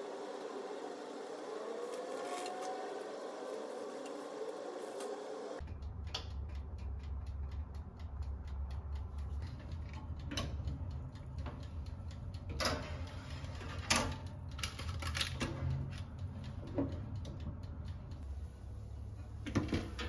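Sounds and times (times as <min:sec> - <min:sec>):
soft ticking: 0:05.6 - 0:18.5
low steady hum: 0:15.9 - 0:20.0.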